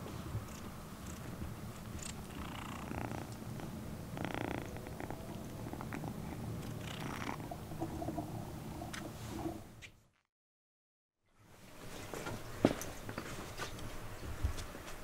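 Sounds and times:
kitten purring: 0:00.4 - 0:08.2.

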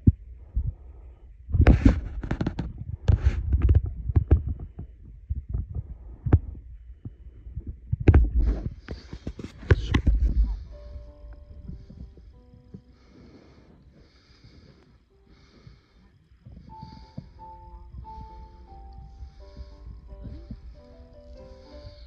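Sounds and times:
microphone handling thumps: 0:01.5 - 0:12.9, 0:16.4 - 0:20.9
rustling: 0:08.1 - 0:22.0.

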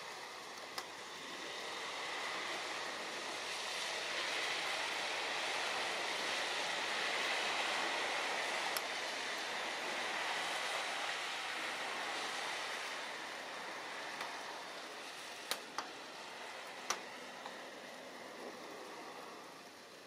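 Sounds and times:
water rushing from moving boat: 0:00.0 - 0:20.0.

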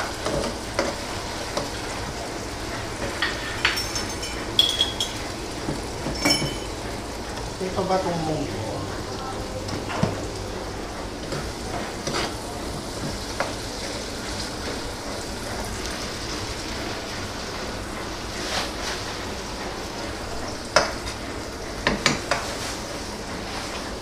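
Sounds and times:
tomatoes sizzling in oil: 0:00.0 - 0:24.0
metal spatula scraping pan: 0:12.0 - 0:12.4.

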